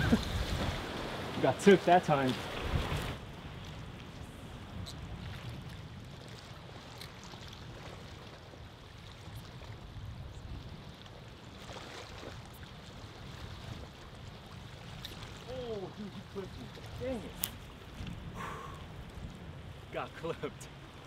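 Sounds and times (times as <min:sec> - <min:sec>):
wind buffeting microphone: 0:00.0 - 0:01.5, 0:02.4 - 0:06.9, 0:12.2 - 0:20.0
rippling water: 0:00.0 - 0:21.0.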